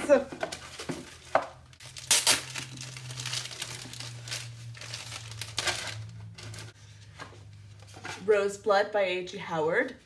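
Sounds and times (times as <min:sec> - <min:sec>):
wrapping crinkling and rustling: 0:00.1 - 0:06.8.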